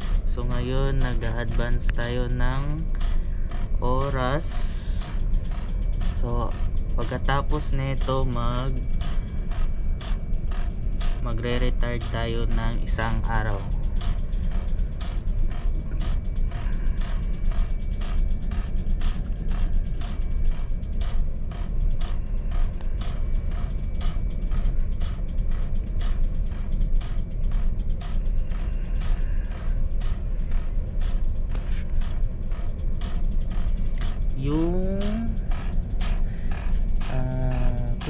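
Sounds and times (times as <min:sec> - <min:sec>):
ship engines droning: 0:00.0 - 0:38.0.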